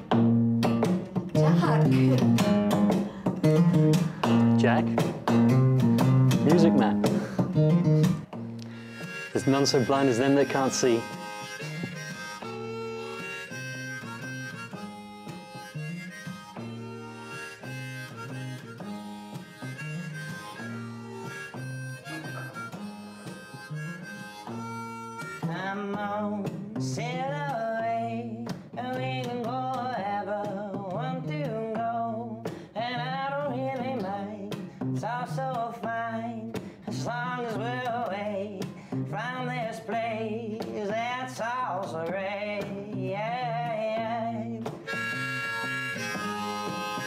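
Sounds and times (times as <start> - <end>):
guitar accompaniment: 0.0 - 47.0
harmonica melody: 1.4 - 26.3, 44.8 - 47.0.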